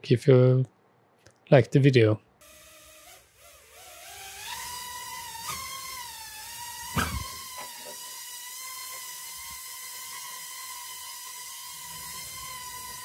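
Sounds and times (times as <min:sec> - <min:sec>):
drone propellers whining: 0:03.1 - 0:13.0
short thump: 0:07.0 - 0:07.4.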